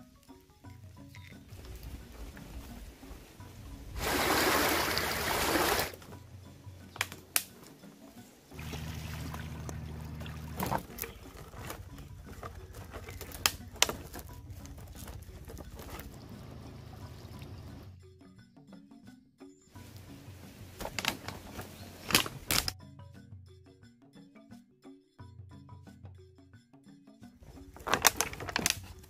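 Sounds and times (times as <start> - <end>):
background music low tones: 0.0 - 29.0
rush of water: 1.9 - 6.0, 8.5 - 11.6.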